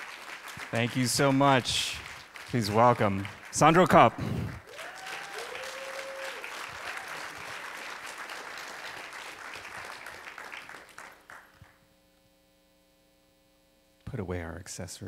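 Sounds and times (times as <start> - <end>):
audience applauding: 0.0 - 11.8
faint electrical hum: 0.0 - 15.0.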